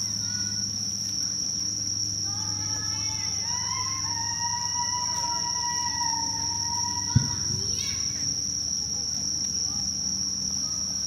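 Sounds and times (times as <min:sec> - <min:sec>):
low hum: 0:00.0 - 0:08.8
faint whistling tones: 0:00.0 - 0:11.0
night insects chirring: 0:00.0 - 0:11.0.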